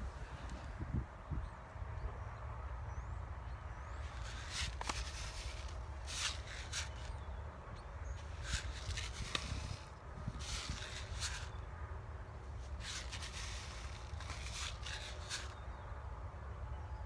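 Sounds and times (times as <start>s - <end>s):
paper packet rustling: 4.2s - 7.1s, 8.2s - 11.5s, 12.8s - 15.6s.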